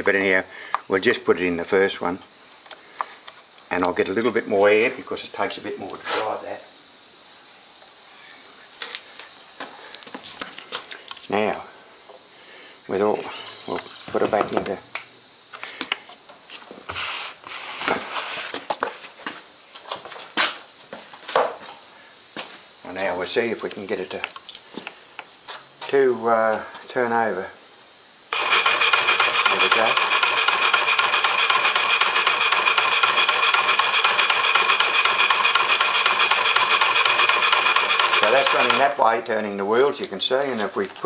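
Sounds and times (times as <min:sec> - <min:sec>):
compressed air hissing: 0:16.8 - 0:18.7, 0:27.7 - 0:39.0.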